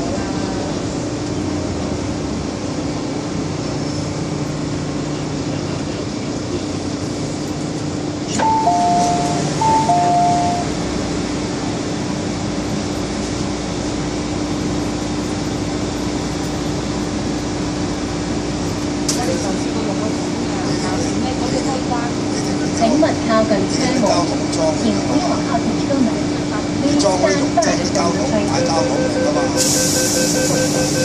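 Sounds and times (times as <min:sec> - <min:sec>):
train running with hum and rumble: 0:00.0 - 0:31.0
two-tone electronic chime: 0:08.4 - 0:10.7, 0:28.6 - 0:31.0.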